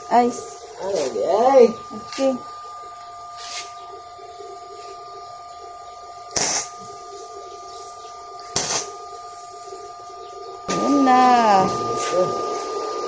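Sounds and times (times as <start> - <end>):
steady high whine: 0.0 - 13.0
welding arc crackling: 6.2 - 7.5, 8.3 - 10.1.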